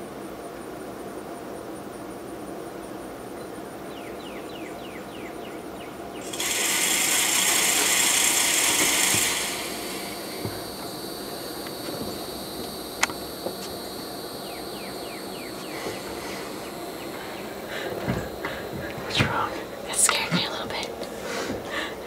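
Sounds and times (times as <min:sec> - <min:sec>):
high insect trill: 0:00.0 - 0:22.0
feeder spinner whirring: 0:06.2 - 0:22.0.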